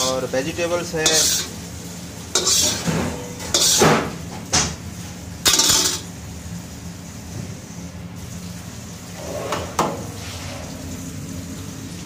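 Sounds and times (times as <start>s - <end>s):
metal spatula scraping a wok: 1.0s - 1.5s, 2.3s - 3.9s.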